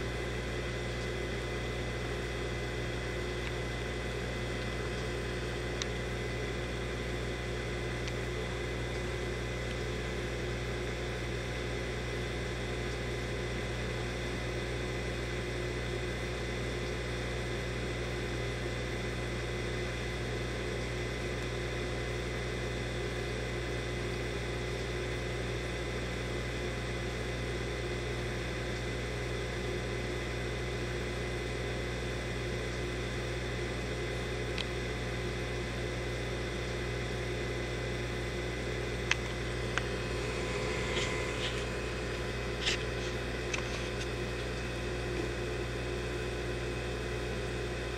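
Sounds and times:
aquarium pumps humming: 0.0s - 47.9s.

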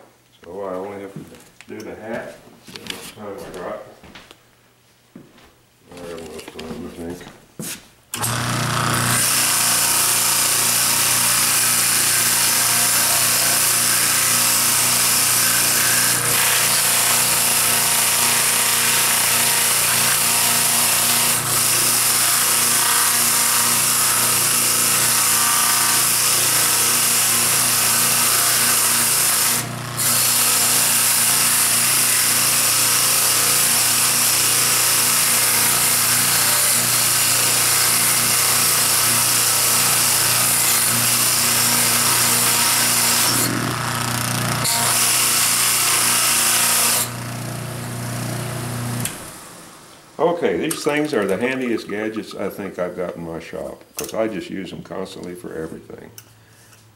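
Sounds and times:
electric motor hum: 8.2s - 49.8s.

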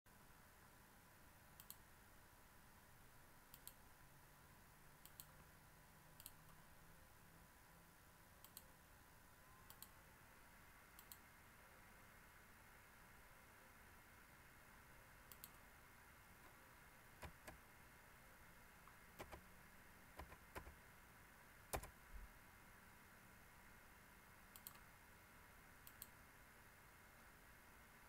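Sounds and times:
low steady hiss: 0.1s - 28.0s
computer mouse clicks: 1.6s - 1.8s, 3.5s - 3.8s, 5.0s - 5.4s, 6.2s - 6.6s, 8.4s - 8.7s, 9.6s - 10.0s, 11.0s - 11.2s, 15.3s - 15.6s, 17.2s - 17.6s, 18.9s - 19.5s, 20.2s - 20.8s, 21.7s - 21.9s, 24.5s - 24.9s, 25.8s - 26.2s.

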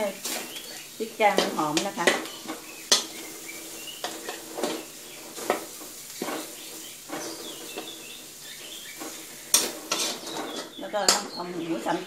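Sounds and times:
light sizzle: 0.0s - 12.0s
metal spatula scraping a wok: 0.0s - 12.0s.

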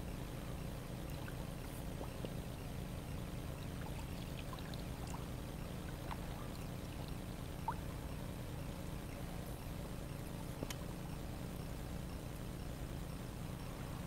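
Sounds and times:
steady low rumble: 0.0s - 14.0s
small water plinks: 0.9s - 9.4s
water trickling and dripping: 3.5s - 8.2s.

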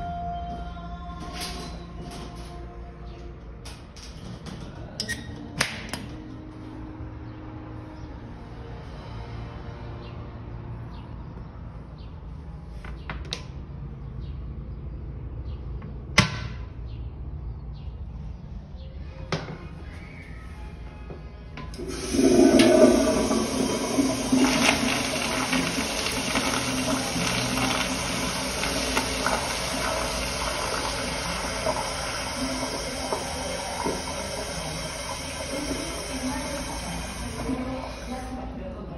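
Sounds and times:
toilet flush water refilling hiss: 21.8s - 38.4s.

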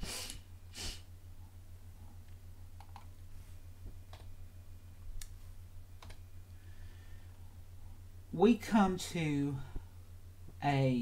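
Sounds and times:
steady low hum: 0.0s - 11.0s
soft scattered clicks: 2.2s - 4.4s, 6.0s - 6.6s
breaths close to microphone: 6.6s - 7.6s.

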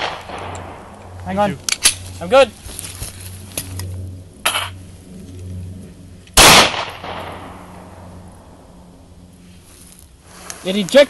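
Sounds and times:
pistol shot: 0.0s - 0.8s, 6.4s - 7.6s.

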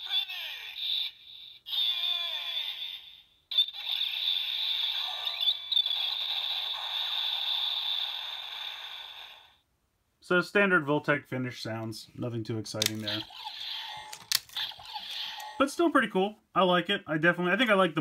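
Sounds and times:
tinny toy electronic effects: 12.7s - 15.9s.

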